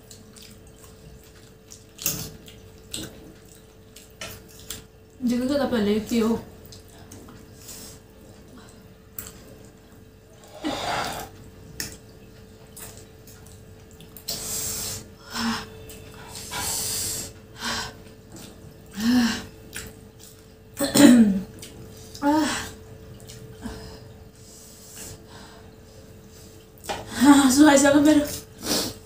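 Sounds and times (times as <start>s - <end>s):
noodle slurping: 10.4s - 11.4s
person sniffing: 10.5s - 11.3s.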